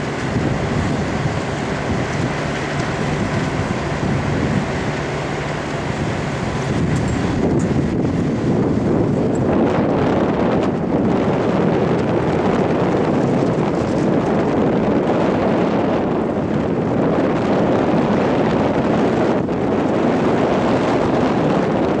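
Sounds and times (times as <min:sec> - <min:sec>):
diesel engine running: 0:00.0 - 0:20.6
wind buffeting microphone: 0:00.0 - 0:22.0.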